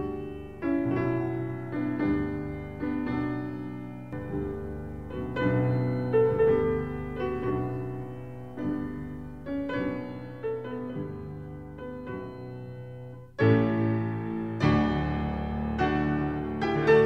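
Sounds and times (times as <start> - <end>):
slow gentle piano music: 0.0 - 17.0.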